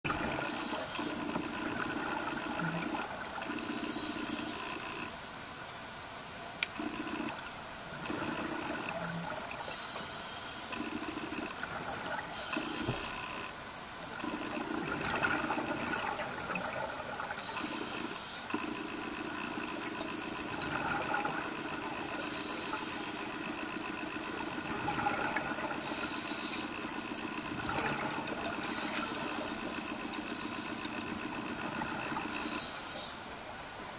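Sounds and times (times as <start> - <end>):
steady hum: 0.1 - 33.8
regulator hiss on inhale: 0.4 - 1.2, 3.6 - 5.1, 9.6 - 11.1, 12.3 - 13.6, 17.4 - 18.8, 22.2 - 23.5, 25.8 - 26.8, 28.6 - 31.0, 32.3 - 33.4
bubbling exhalations: 24.2 - 32.4.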